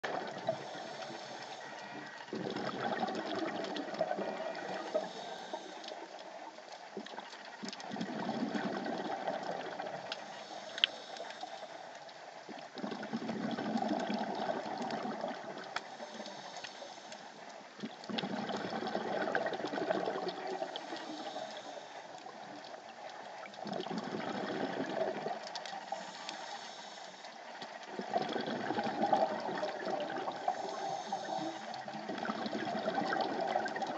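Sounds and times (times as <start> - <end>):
exhaled bubbles underwater: 0.0 - 10.5, 12.3 - 16.6, 17.6 - 33.9
regulator inhalations: 4.6 - 6.2, 10.2 - 11.9, 15.9 - 17.5, 20.6 - 22.4, 25.8 - 27.4, 30.4 - 31.9.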